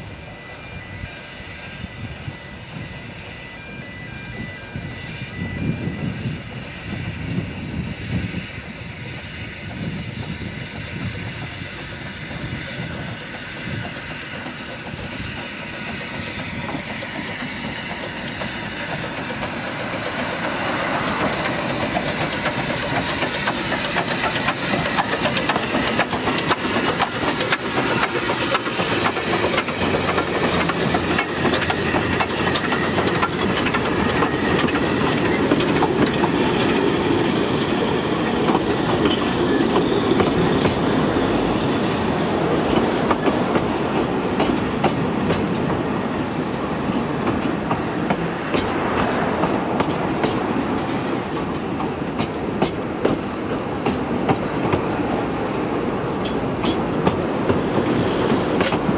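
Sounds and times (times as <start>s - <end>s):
steam train rumbling past: 0.0s - 58.9s
wheels clicking over rail joints: 12.9s - 45.9s, 46.5s - 58.9s.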